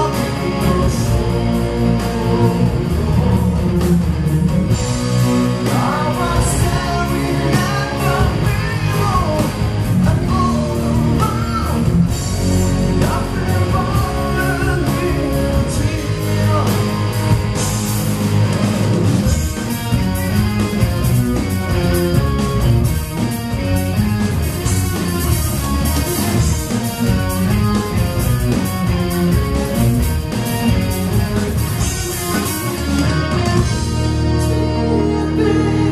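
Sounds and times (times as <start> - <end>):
person singing: 0.0 - 3.7, 5.6 - 17.1, 34.2 - 35.9
bass: 0.0 - 35.9
drum kit: 0.0 - 35.9
electric guitars: 0.0 - 35.9
keyboards: 0.0 - 35.9.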